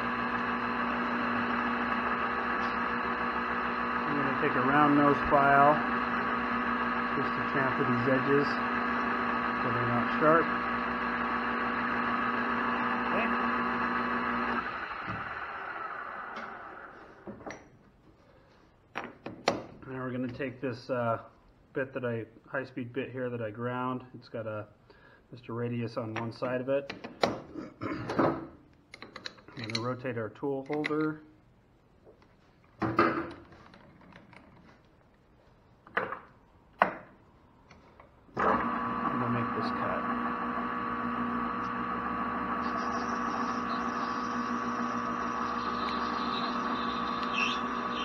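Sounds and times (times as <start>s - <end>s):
metal lathe humming: 0.0s - 17.1s, 38.4s - 48.0s
lathe spindle winding down: 0.0s - 17.2s, 38.4s - 48.0s.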